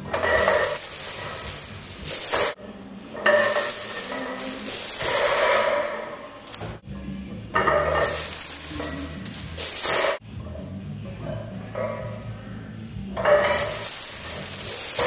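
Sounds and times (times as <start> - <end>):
chains clinking and rattling: 0.2 - 2.6, 3.3 - 5.6, 7.8 - 10.2, 13.3 - 15.0.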